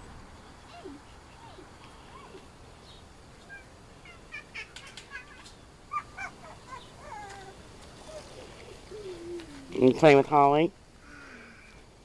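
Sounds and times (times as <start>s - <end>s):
puppies squeaking and yipping: 3.4s - 9.6s
puppies whining: 3.4s - 9.8s.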